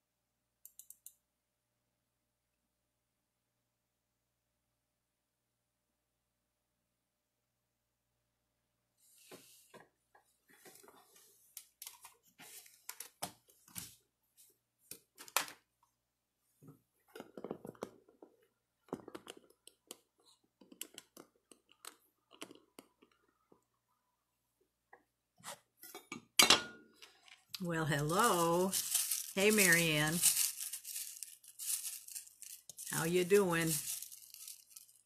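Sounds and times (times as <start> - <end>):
hands handling things: 27.0 - 35.0.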